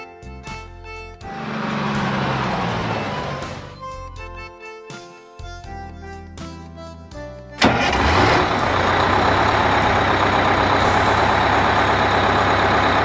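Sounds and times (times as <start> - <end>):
background music: 0.0 - 10.7
truck engine running loudly: 1.2 - 4.0, 7.6 - 13.0.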